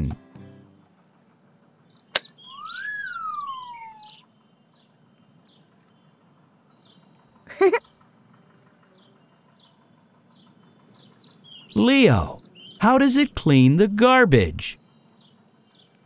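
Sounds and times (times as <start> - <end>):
sparkling chime with whistle: 1.5 - 11.1
faint bird chirps: 1.8 - 6.0.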